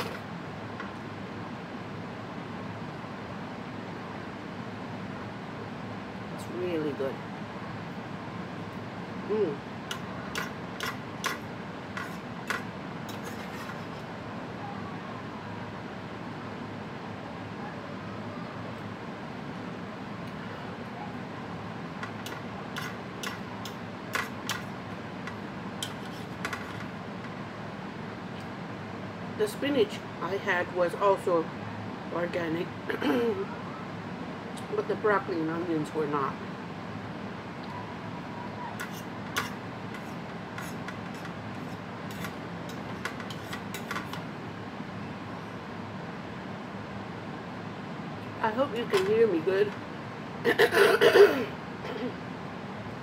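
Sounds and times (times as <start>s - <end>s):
low background hum: 0.0s - 53.0s
fork clicking on ceramic bowl: 22.1s - 24.7s.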